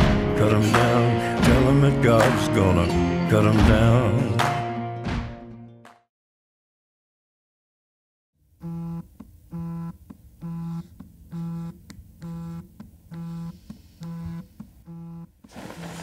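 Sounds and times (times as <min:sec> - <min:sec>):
phone vibrating on desk: 0:08.6 - 0:16.0
bedclothes rustling: 0:15.5 - 0:16.0.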